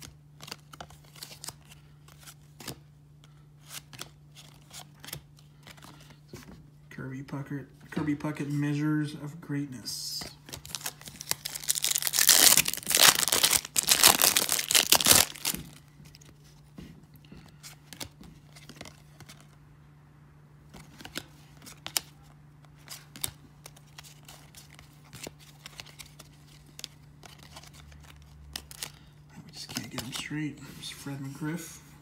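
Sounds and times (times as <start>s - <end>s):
cards clicking and rustling: 0.0s - 6.5s, 10.2s - 16.4s, 20.8s - 30.2s
wrapper crinkling and tearing: 10.5s - 15.8s.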